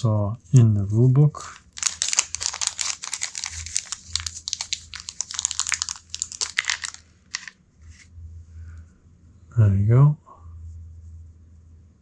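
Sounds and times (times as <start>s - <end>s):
plastic bag crinkling: 1.4s - 7.6s.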